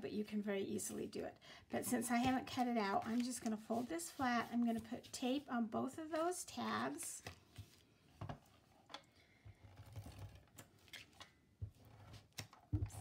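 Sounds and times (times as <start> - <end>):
paper rustling: 2.2 - 8.4.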